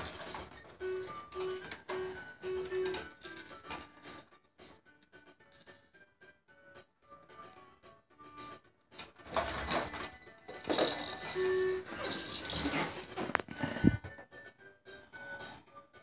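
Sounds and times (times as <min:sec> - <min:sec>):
plastic toys rattling: 0:00.0 - 0:04.2, 0:08.4 - 0:13.8.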